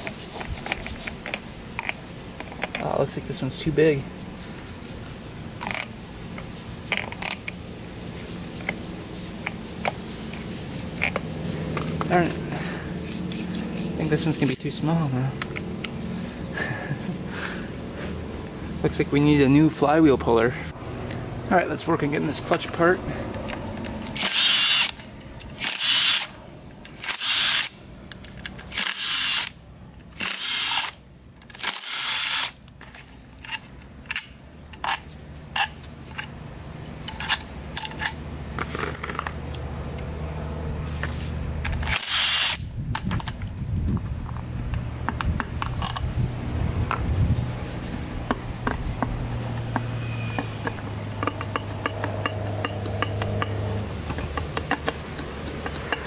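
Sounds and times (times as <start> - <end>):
metal bolts clicking and clinking: 0.0 - 3.7, 5.6 - 7.6, 11.0 - 12.4, 13.3 - 16.0, 33.4 - 39.7, 44.2 - 46.2, 49.6 - 56.0
impact driver bursts: 24.2 - 25.0, 41.9 - 42.6.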